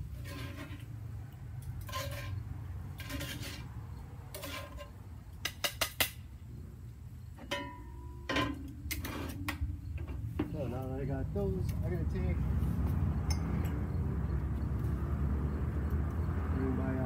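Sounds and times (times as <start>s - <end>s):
utensil scraping cast iron pan: 0.0s - 1.0s, 1.8s - 5.0s, 7.4s - 10.3s
sharp metal clinks: 13.2s - 14.0s.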